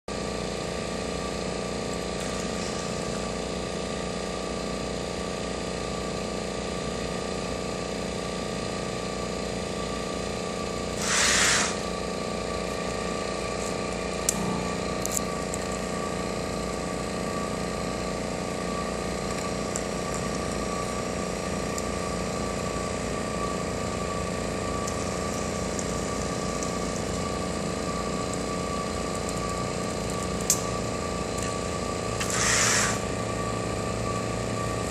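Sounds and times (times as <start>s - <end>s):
machine hum with whining tones: 0.1s - 34.9s
short hiss: 11.0s - 11.8s, 32.2s - 33.0s.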